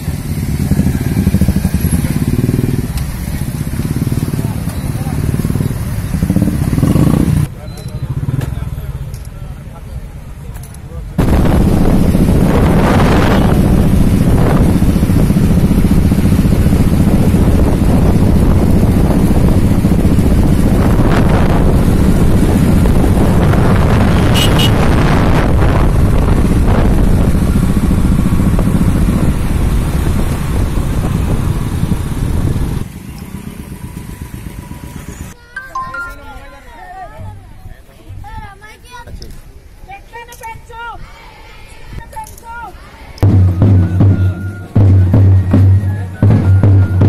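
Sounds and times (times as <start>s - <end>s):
motorcycles riding: 0.0s - 36.4s, 42.7s - 47.0s
wind buffeting microphone: 11.2s - 32.9s.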